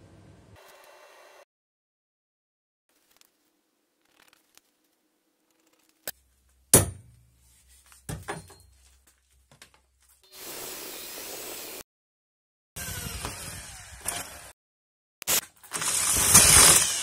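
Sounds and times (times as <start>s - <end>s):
metal knocks on steel tube: 6.8s - 7.2s
power drill running: 12.8s - 14.6s, 15.7s - 17.0s.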